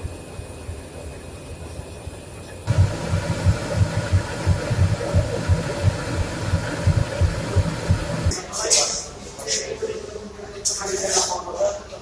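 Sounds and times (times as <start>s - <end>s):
diesel locomotive engine idling: 2.7s - 8.3s.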